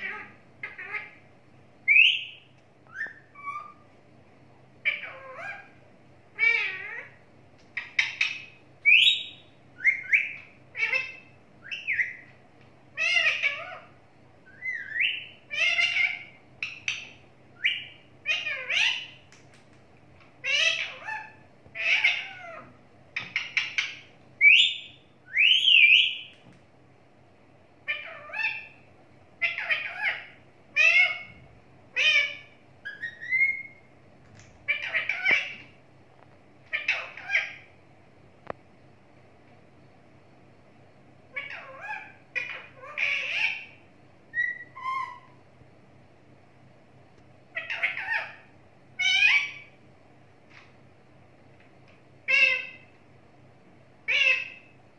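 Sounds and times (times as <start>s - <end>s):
parakeet chirping and squawking: 0.0s - 1.3s, 1.9s - 3.8s, 4.8s - 12.3s, 12.9s - 19.4s, 20.4s - 26.3s, 27.9s - 28.8s, 29.4s - 33.9s, 34.6s - 35.8s, 36.6s - 37.8s, 41.3s - 45.4s, 47.5s - 49.8s, 52.2s - 52.9s, 54.0s - 54.8s.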